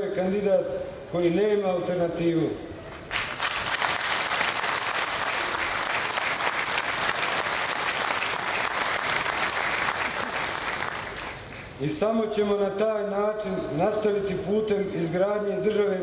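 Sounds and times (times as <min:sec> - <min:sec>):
crowd applauding: 0:03.1 - 0:11.8.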